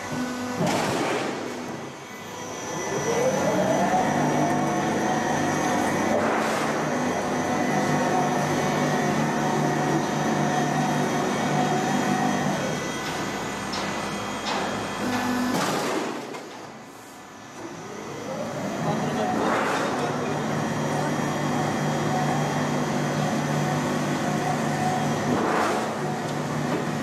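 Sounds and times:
roll forming machine whine: 0.0s - 27.0s
low machine hum: 1.3s - 16.2s.

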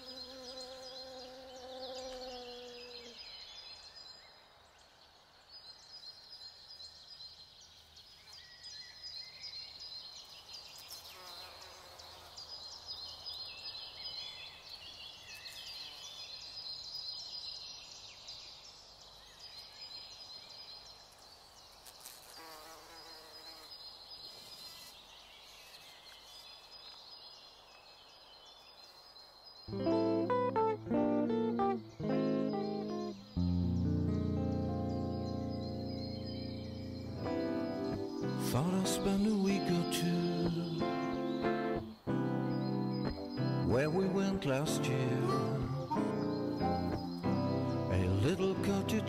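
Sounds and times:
insects trilling: 0.0s - 3.2s.

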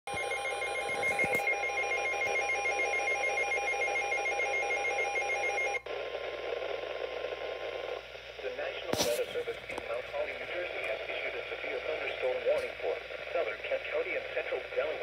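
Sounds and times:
radio static hiss: 5.8s - 15.0s.

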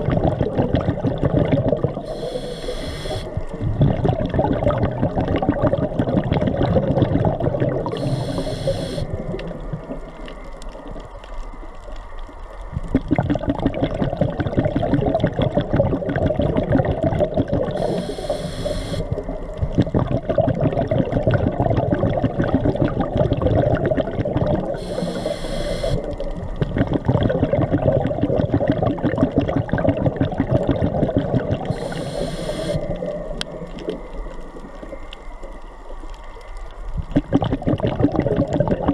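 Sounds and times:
bubbling exhale: 0.0s - 10.2s, 12.8s - 35.1s, 37.0s - 38.9s
constant fine crackle: 0.0s - 38.9s
hissing regulator inhale: 2.0s - 3.4s, 7.9s - 9.1s, 17.7s - 19.1s, 24.8s - 26.2s, 31.7s - 33.0s.

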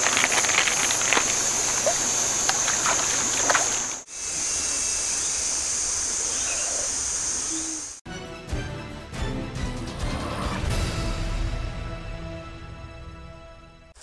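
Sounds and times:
water running over rocks: 0.0s - 4.1s
water splashes: 0.0s - 4.1s.

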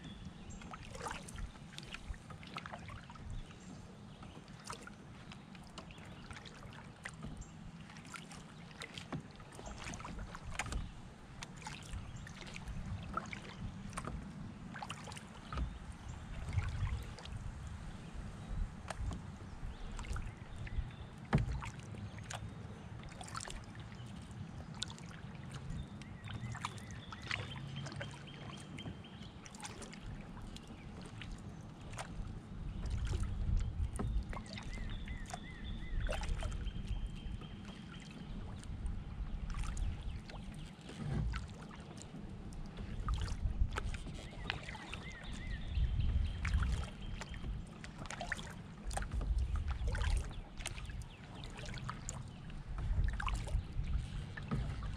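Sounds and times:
paddle splashing water: 0.0s - 54.9s.

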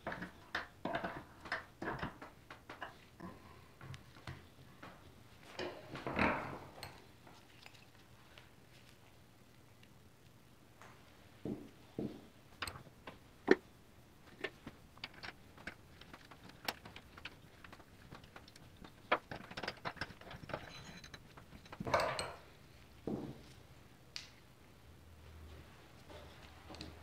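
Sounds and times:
metal parts rattling: 15.0s - 22.4s
small metal parts clicking: 15.0s - 22.4s.

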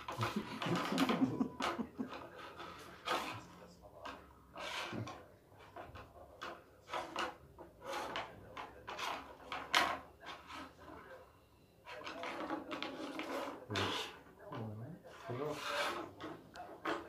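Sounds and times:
kitten claws scraping furniture: 15.1s - 17.0s.

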